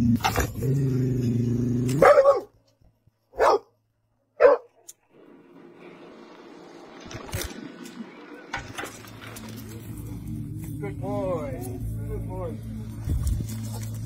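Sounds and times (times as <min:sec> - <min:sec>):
dog growling: 0:00.0 - 0:02.4
dog barking: 0:02.0 - 0:02.6, 0:03.3 - 0:03.8, 0:04.4 - 0:04.8.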